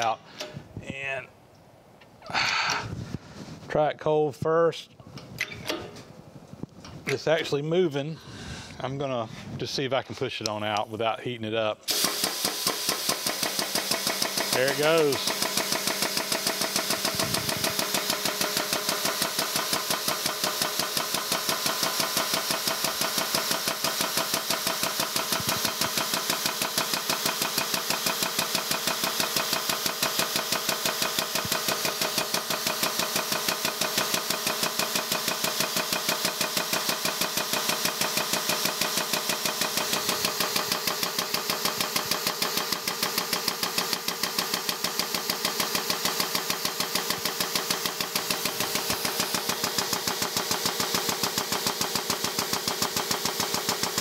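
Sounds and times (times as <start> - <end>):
air-driven pump pulsing: 11.9 - 54.0.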